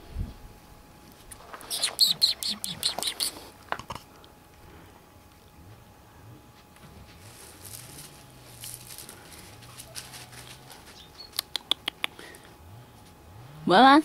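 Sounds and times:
puppy rustling on gravel: 6.6s - 11.4s.

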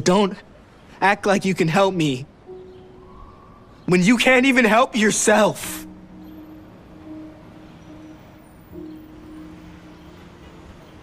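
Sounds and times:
quiet background music: 1.0s - 11.0s.

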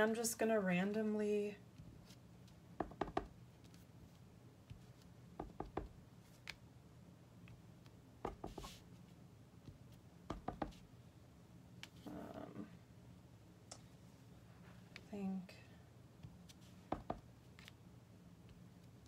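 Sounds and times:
stamp knocking on block and paper: 2.8s - 3.3s, 5.4s - 5.9s, 8.2s - 8.7s, 10.3s - 10.8s, 16.9s - 17.2s.

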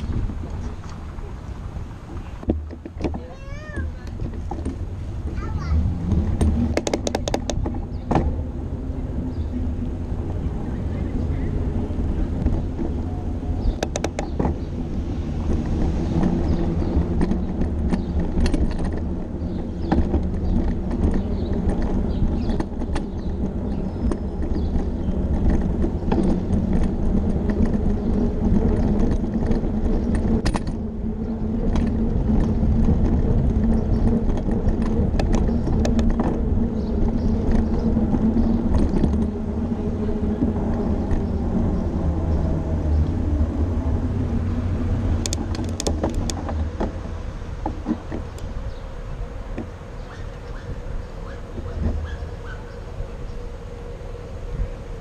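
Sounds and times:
bicycle rattles and clicks: 0.0s - 55.0s
low rumble of wind and road: 0.0s - 55.0s.

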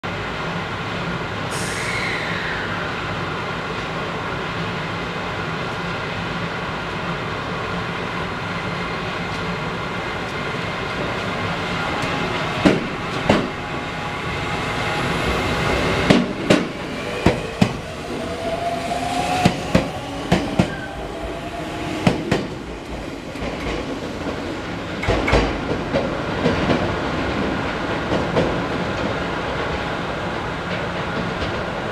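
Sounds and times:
electric train running hum: 6.2s - 29.8s.

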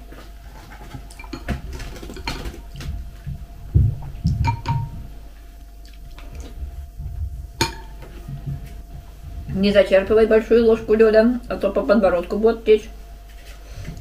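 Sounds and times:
faint steady hum: 0.0s - 14.0s
low soft thumps: 2.9s - 5.3s, 6.5s - 10.8s.

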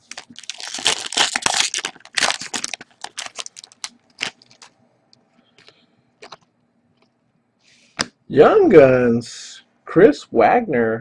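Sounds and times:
foil wrapper crinkling: 0.0s - 4.8s, 5.6s - 6.5s.

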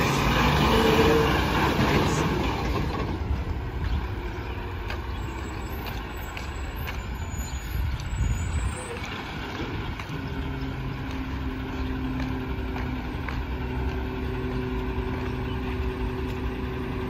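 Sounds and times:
garbage truck diesel engine driving off: 0.0s - 17.0s.

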